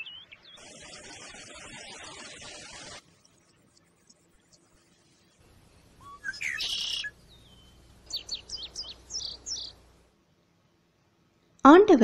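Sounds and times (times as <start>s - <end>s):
bird singing: 0.0s - 0.6s, 6.0s - 9.9s.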